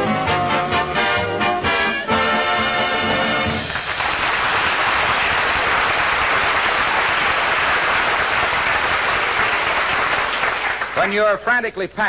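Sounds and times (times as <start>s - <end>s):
audience applauding: 3.4s - 11.4s.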